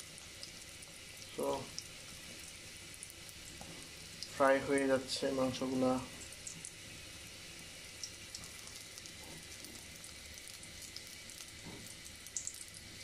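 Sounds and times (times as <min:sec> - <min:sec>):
chicken frying in oil: 0:00.0 - 0:13.0
oil crackling and popping: 0:06.2 - 0:13.0.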